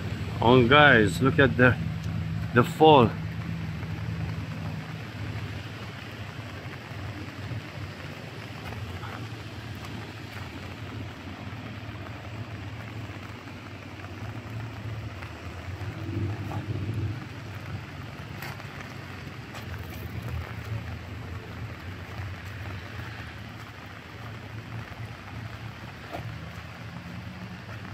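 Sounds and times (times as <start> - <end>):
rain: 0.0 - 27.9.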